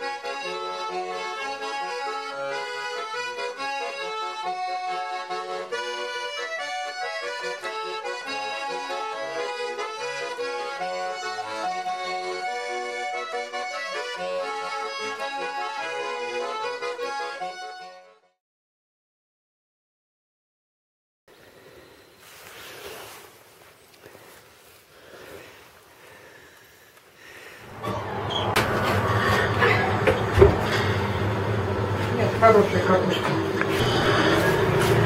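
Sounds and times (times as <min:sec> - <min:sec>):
accordion music: 0:00.0 - 0:18.4, 0:27.6 - 0:35.0.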